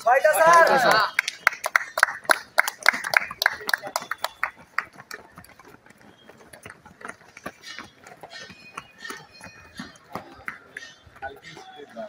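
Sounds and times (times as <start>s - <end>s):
onlookers clapping: 0.0s - 5.7s
footsteps on dirt track: 3.3s - 12.0s.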